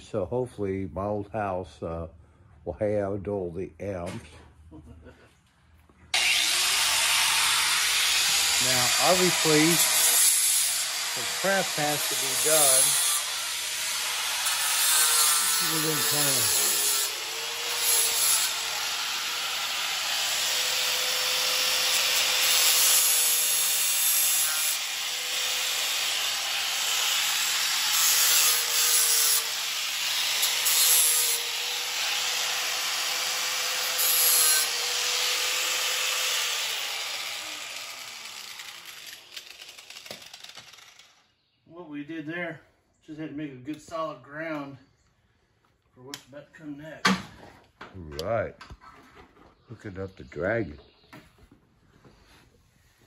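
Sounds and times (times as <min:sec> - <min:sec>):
electric grinder grinding metal: 0:06.2 - 0:41.2.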